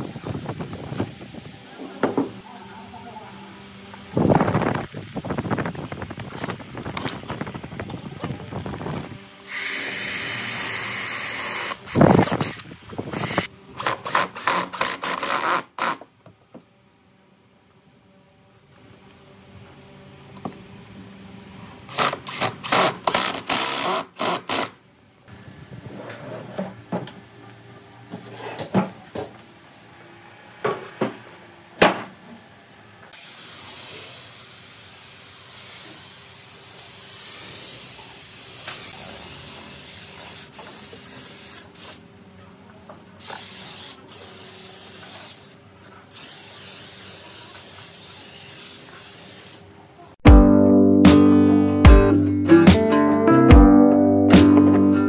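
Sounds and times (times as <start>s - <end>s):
spray gun hissing: 33.2s - 42.0s, 43.2s - 49.7s.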